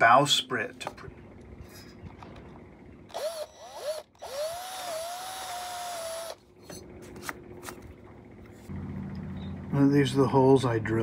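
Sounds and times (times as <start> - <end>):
cordless drill motor whining: 3.1 - 6.4.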